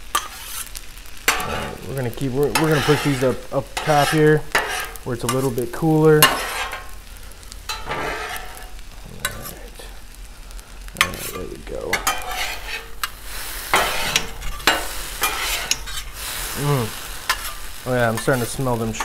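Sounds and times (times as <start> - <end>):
food sizzling on griddle: 0.0 - 19.0
metal spatulas scraping and clacking: 0.1 - 0.7, 1.3 - 1.8, 2.4 - 5.6, 6.2 - 6.9, 7.7 - 9.6, 11.0 - 16.2, 17.3 - 19.0.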